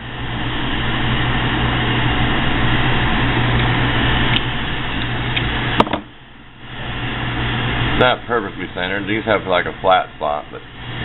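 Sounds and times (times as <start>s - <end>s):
gas torch hissing: 6.6s - 11.0s.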